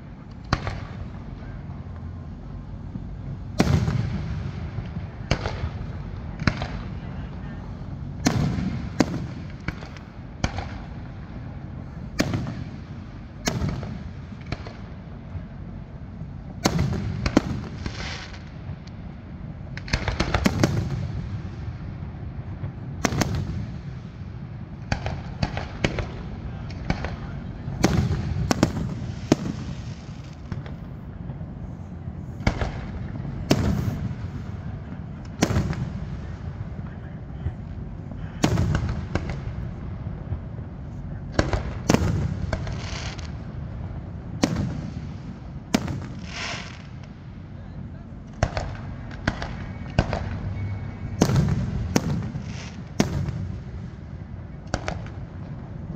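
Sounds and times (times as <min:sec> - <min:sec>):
fireworks bangs: 0:00.0 - 0:55.9
low rumbling echo: 0:00.0 - 0:55.9
crackling pops: 0:00.2 - 0:01.0, 0:48.3 - 0:50.6, 0:54.7 - 0:55.2.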